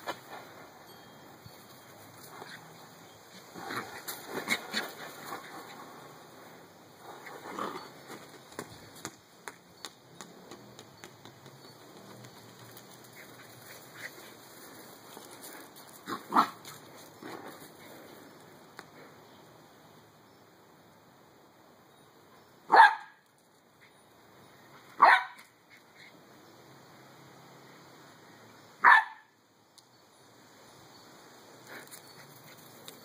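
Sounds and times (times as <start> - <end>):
puppy grunting and yipping: 2.3 - 5.7.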